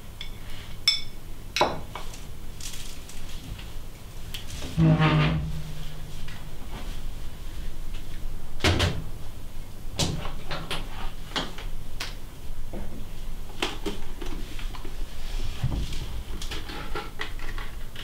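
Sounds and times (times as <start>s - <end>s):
low steady hum: 0.0s - 10.8s.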